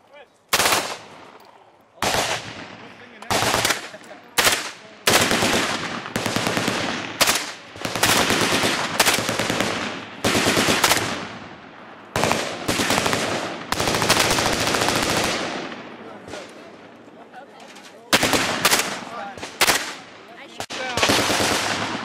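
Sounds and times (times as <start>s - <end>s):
submachine gun automatic bursts: 12.2s - 15.5s, 21.0s - 21.9s.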